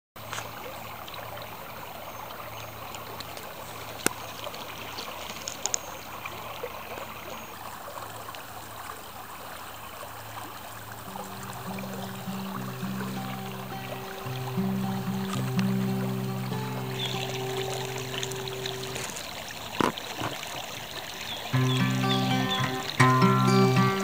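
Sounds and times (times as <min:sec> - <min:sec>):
stream trickling over rocks: 0:00.2 - 0:24.0
guitar music: 0:11.0 - 0:19.1, 0:21.5 - 0:24.0.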